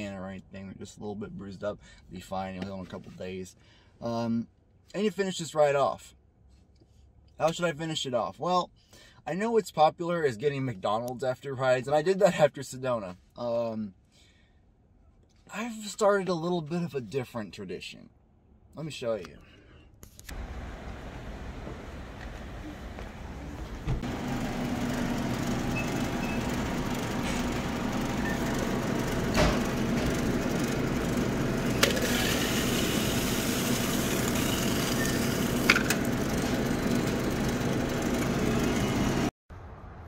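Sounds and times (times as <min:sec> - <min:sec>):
car engine and road noise: 0:20.2 - 0:40.0.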